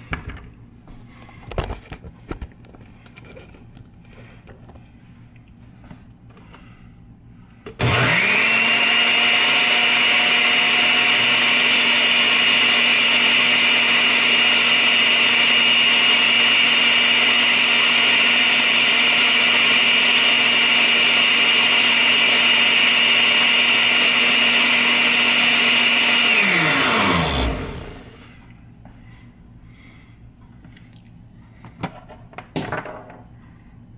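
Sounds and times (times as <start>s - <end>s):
blender motor whining: 7.8s - 28.3s.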